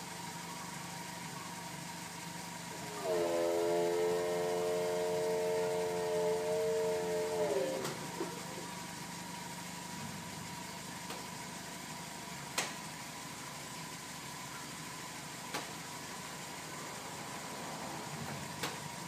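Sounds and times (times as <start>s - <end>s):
steady hum: 0.0s - 19.0s
electric roof pump whining: 2.6s - 11.2s.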